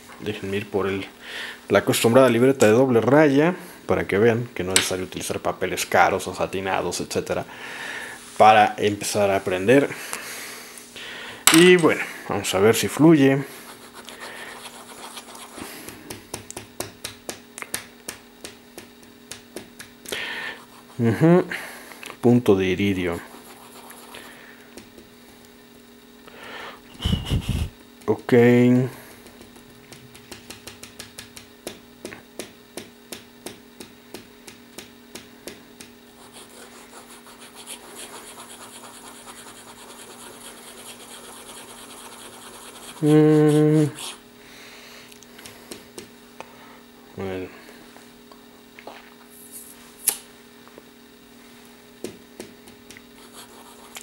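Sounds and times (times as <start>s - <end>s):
pen nib scratching on paper: 13.8s - 15.6s, 36.2s - 44.2s, 53.2s - 54.0s.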